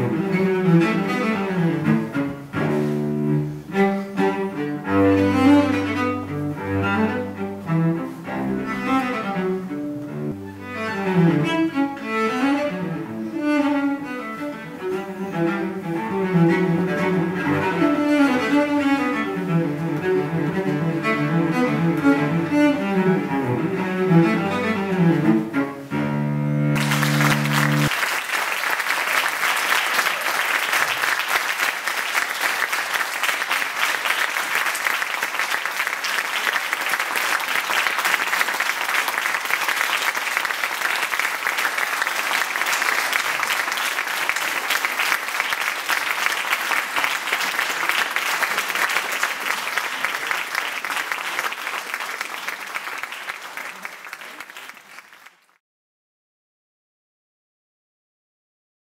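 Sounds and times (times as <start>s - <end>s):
cello holding a note: 25.9s - 27.9s
audience applauding: 26.8s - 55.6s.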